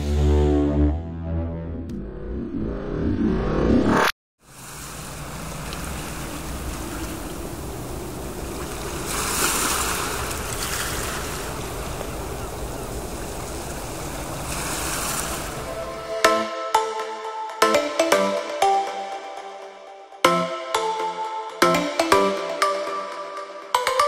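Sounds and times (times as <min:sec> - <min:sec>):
music: 0:00.0 - 0:02.6, 0:15.8 - 0:24.0
breaking waves: 0:04.4 - 0:16.0
wind noise: 0:04.6 - 0:15.8.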